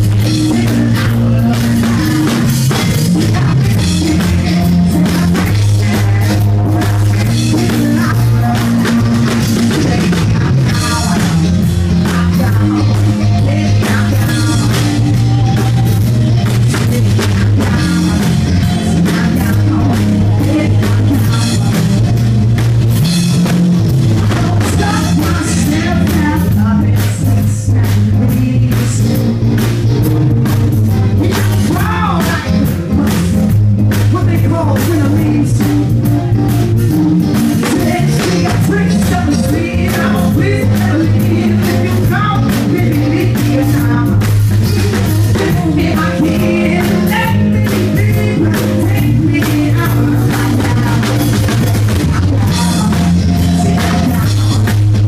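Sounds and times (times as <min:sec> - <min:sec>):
man singing into microphone: 0:00.0 - 0:22.3, 0:24.3 - 0:29.4, 0:31.2 - 0:35.9, 0:37.6 - 0:54.8
live band playing: 0:00.0 - 0:55.0.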